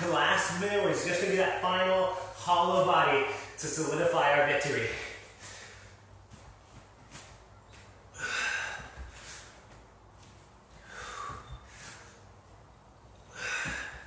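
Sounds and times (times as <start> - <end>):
person exhaling hard: 8.1 - 9.5, 10.8 - 12.1, 13.3 - 14.0.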